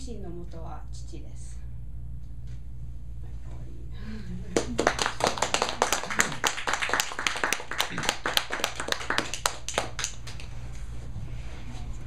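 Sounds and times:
small group applauding: 0:04.5 - 0:10.6.

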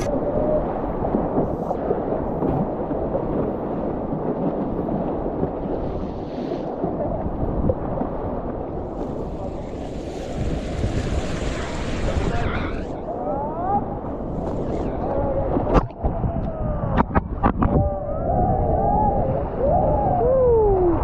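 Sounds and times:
wind buffeting microphone: 0:00.0 - 0:21.0
water splashing: 0:07.3 - 0:13.2.

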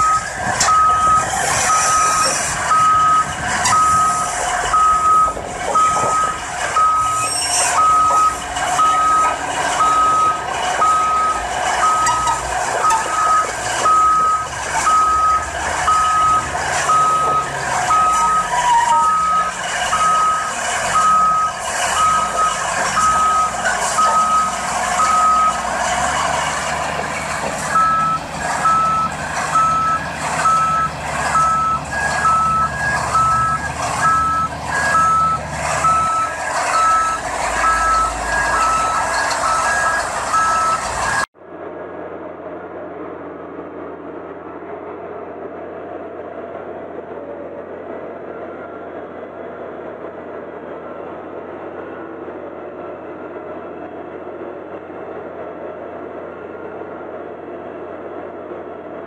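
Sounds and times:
backup alarm beeping: 0:00.0 - 0:07.2, 0:07.8 - 0:25.6, 0:27.8 - 0:41.3
higher-pitched backup alarm: 0:00.0 - 0:25.6, 0:27.7 - 0:41.3
diesel engine running: 0:00.0 - 0:59.0.

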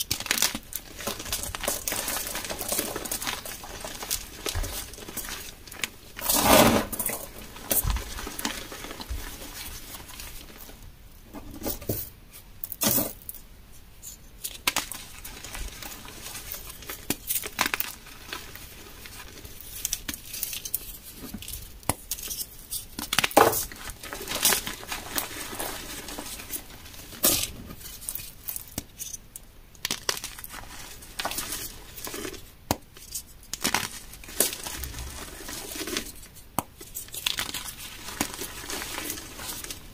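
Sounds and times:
chalk crumbling and crunching: 0:00.0 - 0:10.8, 0:14.0 - 0:39.9
chalk pieces snapping: 0:19.8 - 0:24.7.

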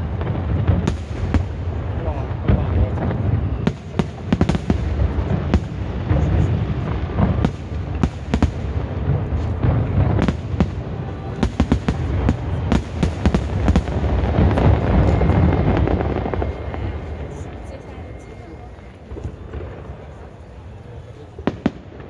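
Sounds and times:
low rumble of booms: 0:00.0 - 0:17.6
fireworks cracking: 0:00.0 - 0:22.0.

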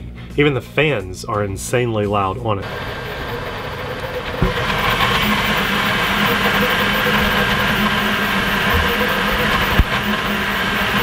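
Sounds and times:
printer fans and motors running: 0:02.6 - 0:11.0.

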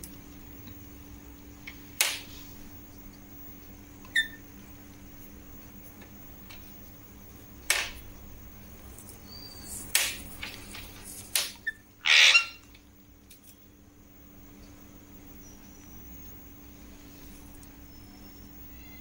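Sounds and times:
parakeet squawk: 0:04.1 - 0:04.4, 0:11.6 - 0:12.7.

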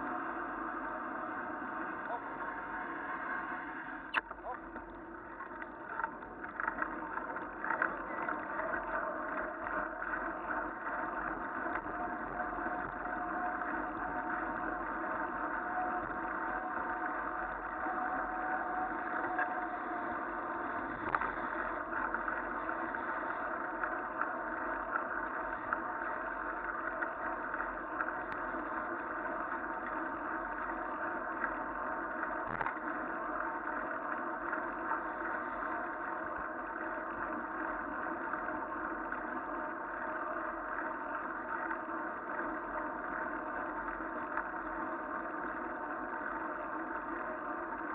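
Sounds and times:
faint clicks and rattles: 0:04.1 - 0:13.5.

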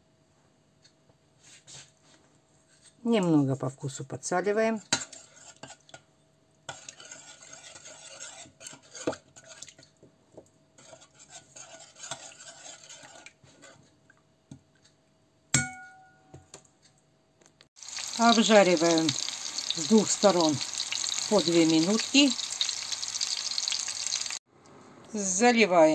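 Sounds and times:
spoon scraping a bowl: 0:05.0 - 0:05.9, 0:06.7 - 0:09.9, 0:10.8 - 0:13.9
spoon clinking on bowl: 0:15.6 - 0:16.3.

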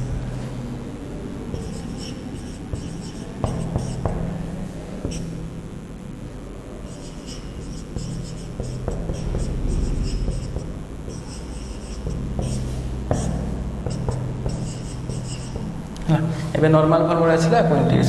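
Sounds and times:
low steady hum: 0:00.0 - 0:18.0
marker squeaking on whiteboard: 0:01.5 - 0:05.4, 0:06.8 - 0:15.8.

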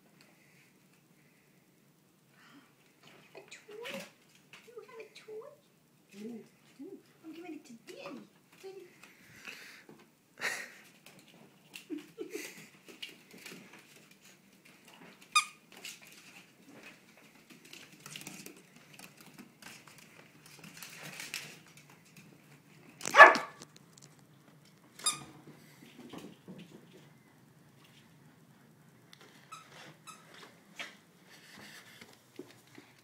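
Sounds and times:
small dog barking: 0:23.1 - 0:23.6.

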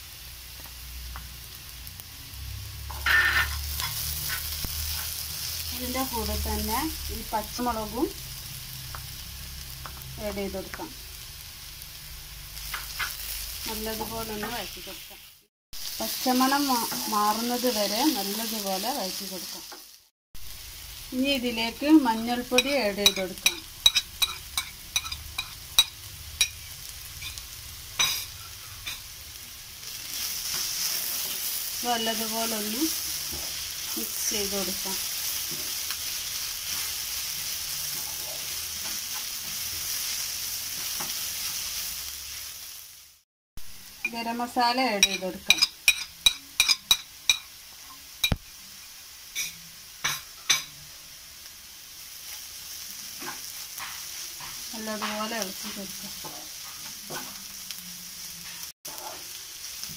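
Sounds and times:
food sizzling in a pan: 0:00.0 - 0:59.9
utensils tapping a pan: 0:22.5 - 0:26.6, 0:28.0 - 0:29.1, 0:45.0 - 0:48.4, 0:53.2 - 0:57.4
spoon tapping on a plate: 0:23.1 - 0:26.6, 0:45.0 - 0:47.5.

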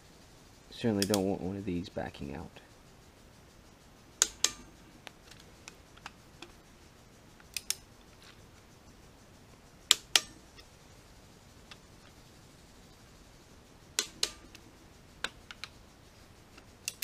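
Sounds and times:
torque wrench clicking: 0:00.9 - 0:01.3, 0:04.2 - 0:06.6, 0:07.4 - 0:07.9, 0:09.8 - 0:10.7, 0:13.9 - 0:15.8, 0:16.5 - 0:17.0
faint ticks: 0:02.6 - 0:17.0.

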